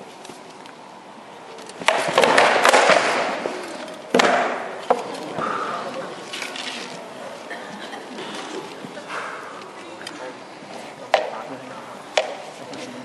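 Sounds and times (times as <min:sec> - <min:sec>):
swords clattering against shields: 0:01.6 - 0:05.6, 0:11.1 - 0:11.5, 0:12.2 - 0:12.8.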